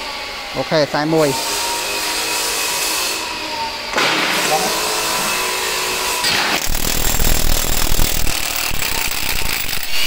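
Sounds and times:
impact wrench motor whirring: 3.9 - 10.0.

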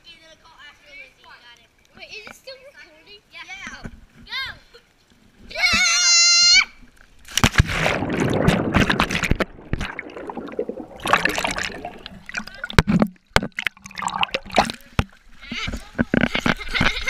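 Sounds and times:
child shouting: 5.5 - 6.8
splash into water: 7.2 - 15.2
muffled underwater bubbling: 7.7 - 15.2.

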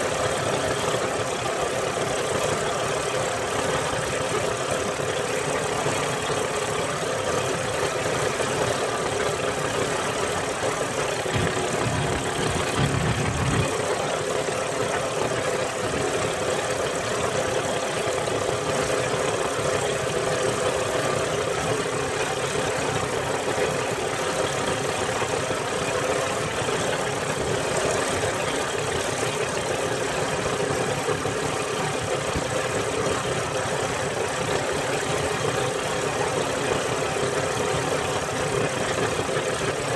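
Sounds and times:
boat engine running: 0.0 - 39.9
rush of wind and water: 11.2 - 14.9.

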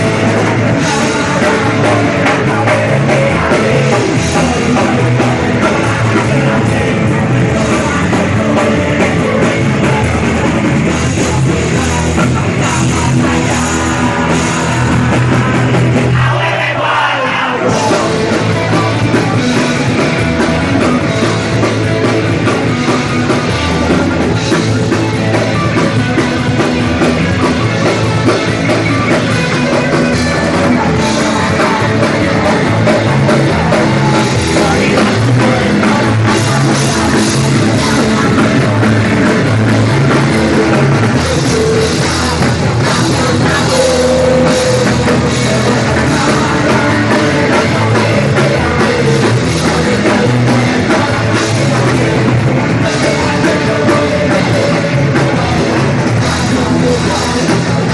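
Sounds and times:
punk rock band playing live: 0.0 - 57.9
voices shouting vocals: 16.0 - 19.2, 43.1 - 45.3.

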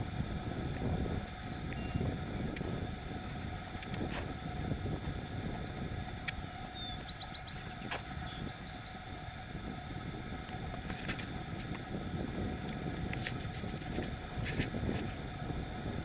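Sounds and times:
wind rumble on microphone: 0.0 - 16.0
faint bird chirps: 6.6 - 9.0.

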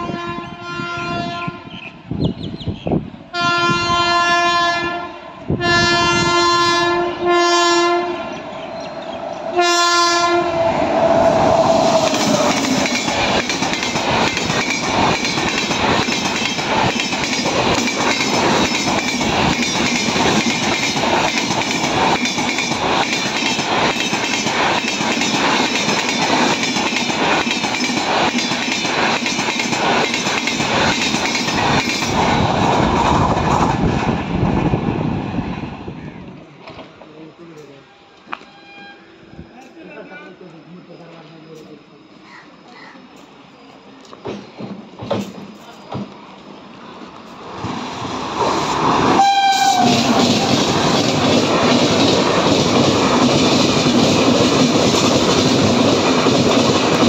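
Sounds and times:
locomotive air horn blasts: 0.0 - 1.8, 3.3 - 8.2, 9.6 - 10.6, 37.9 - 39.4, 49.2 - 50.1
train wheels clattering over rail joints: 12.0 - 33.9, 44.1 - 46.5, 48.9 - 57.0.

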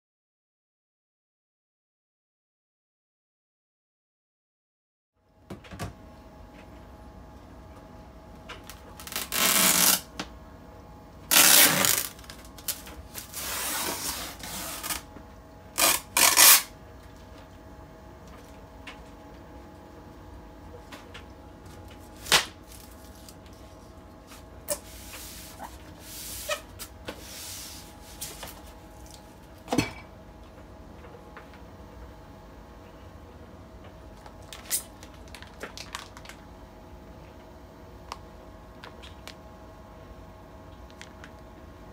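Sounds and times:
packing tape tearing: 8.6 - 10.1, 11.3 - 15.1, 15.8 - 16.7, 34.5 - 36.4.

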